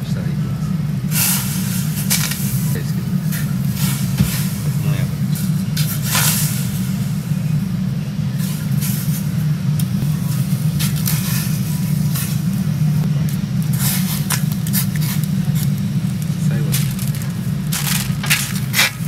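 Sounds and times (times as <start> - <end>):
kitchen equipment humming: 0.0 - 19.0
clicks and clatters in a pot: 13.2 - 19.0.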